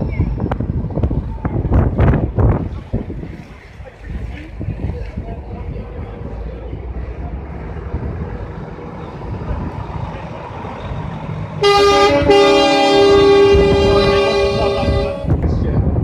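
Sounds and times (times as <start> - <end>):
truck rumbling: 0.0 - 16.0
truck horns sounding a chord: 11.6 - 15.4.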